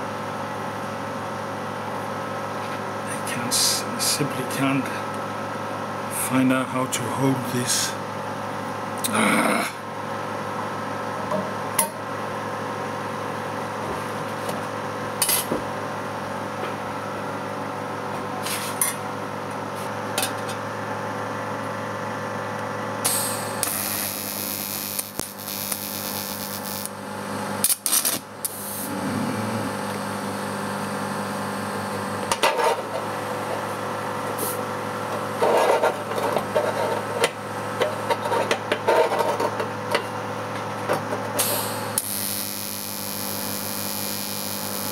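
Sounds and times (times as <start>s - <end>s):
welding set humming: 0.0s - 44.9s
welding arc hissing: 23.1s - 27.0s, 28.4s - 29.0s, 41.4s - 44.9s
electrode crackling: 23.7s - 26.9s.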